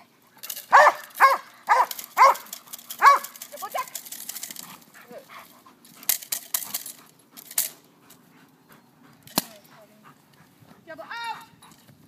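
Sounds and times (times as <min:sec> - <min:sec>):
sharp clicks and rattles: 0:00.4 - 0:05.0, 0:05.8 - 0:08.2
dog panting: 0:04.5 - 0:12.0.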